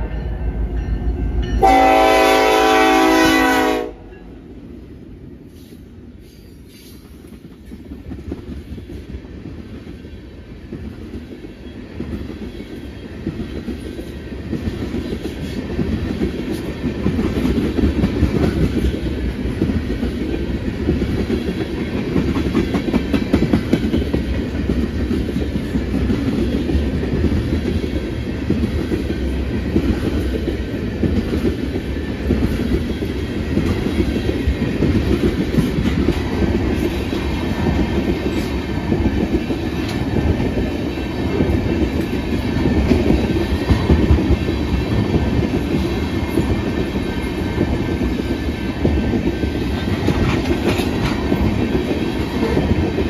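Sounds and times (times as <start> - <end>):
train wheels clattering over joints: 12.0 - 53.0.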